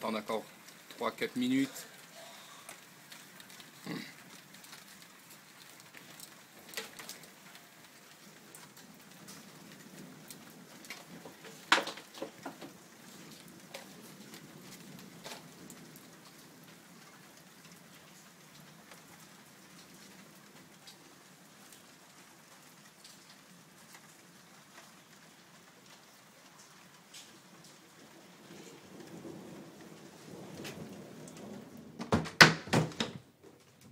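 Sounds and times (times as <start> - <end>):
rain falling on rooftops: 0.0 - 33.9
water drips and taps: 10.3 - 14.4.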